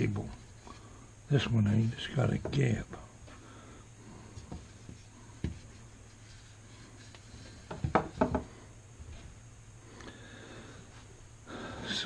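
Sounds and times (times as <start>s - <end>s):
propeller blades knocking on wood: 7.7s - 8.5s.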